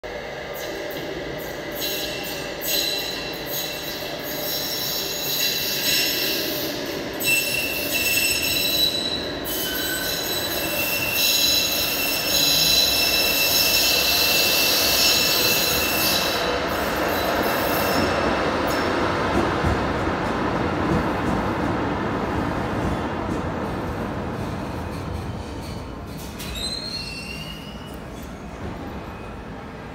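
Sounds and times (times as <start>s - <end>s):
train rumble: 0.0s - 29.9s
train wheels squealing on rails: 0.5s - 19.0s, 24.4s - 29.7s.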